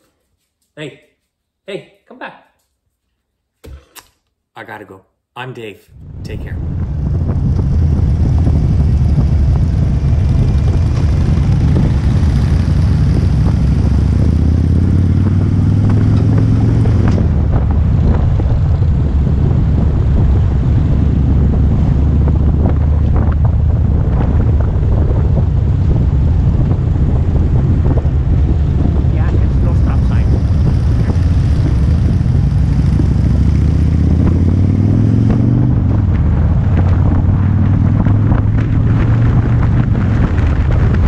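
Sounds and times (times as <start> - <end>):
wind noise on microphone: 5.9 - 41.0
motorcycle engine running: 6.6 - 41.0.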